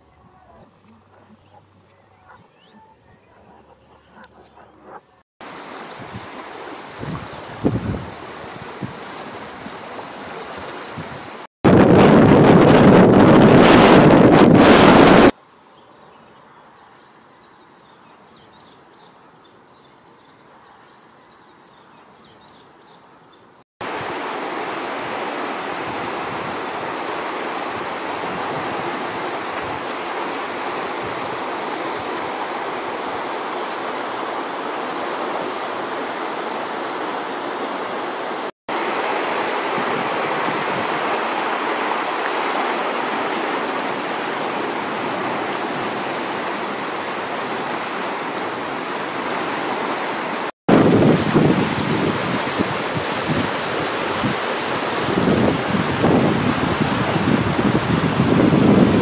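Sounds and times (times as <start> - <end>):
floodwater rushing and churning: 5.4 - 15.3, 23.8 - 59.0.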